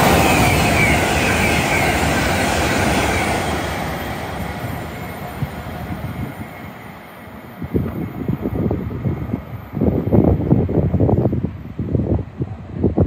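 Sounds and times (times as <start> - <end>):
train wheel and rail rush: 0.0 - 13.0.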